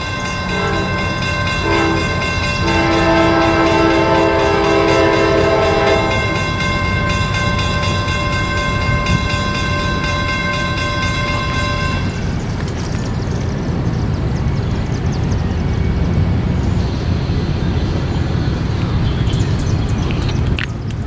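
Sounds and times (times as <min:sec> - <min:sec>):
distant locomotive air horn: 0:00.0 - 0:12.4
steady high ringing tone: 0:00.0 - 0:14.9
low rumble of train: 0:00.0 - 0:21.0.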